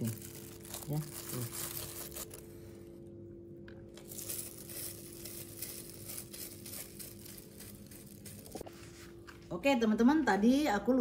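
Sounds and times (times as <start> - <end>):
food crinkling and rustling by hand: 0.0 - 2.6, 3.6 - 9.4.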